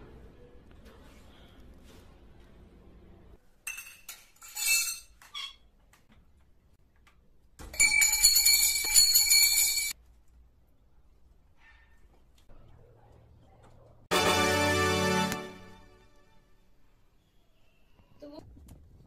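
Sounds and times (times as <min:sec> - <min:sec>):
metal poles clinking and rattling: 0:03.6 - 0:05.6, 0:07.6 - 0:10.0.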